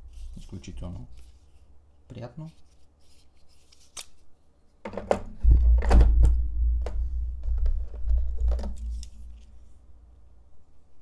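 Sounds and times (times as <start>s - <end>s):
plastic clicks and knocks: 4.8s - 9.0s.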